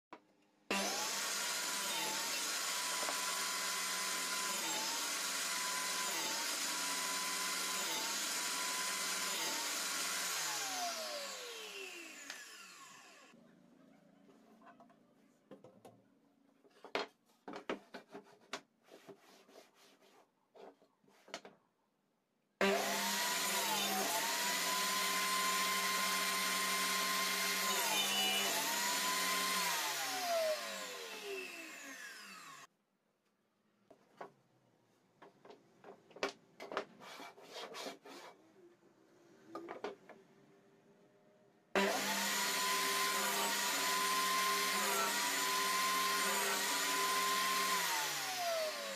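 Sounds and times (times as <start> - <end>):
table saw whining: 0.7 - 13.4, 22.6 - 32.7, 41.8 - 48.9.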